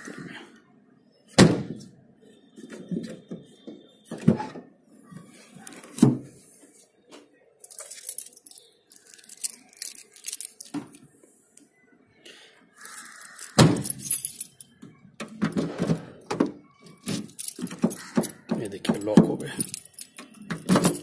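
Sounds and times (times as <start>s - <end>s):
keys jangling: 7.6s - 11.0s, 12.8s - 14.8s, 16.8s - 21.0s.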